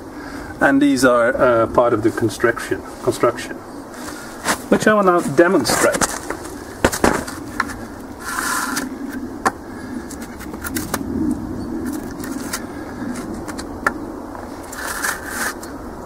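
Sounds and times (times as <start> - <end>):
rustling handling noise: 2.9 - 9.2
wood knocking on wood: 6.0 - 7.8.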